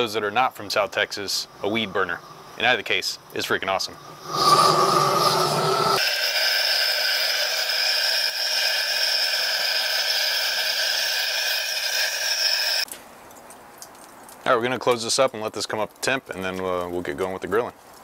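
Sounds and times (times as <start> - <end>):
propane torch hissing: 1.6 - 12.9.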